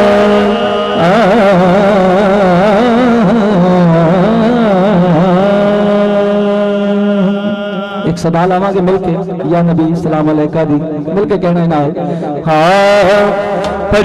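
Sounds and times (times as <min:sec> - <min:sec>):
man singing into microphone: 0:00.0 - 0:09.4.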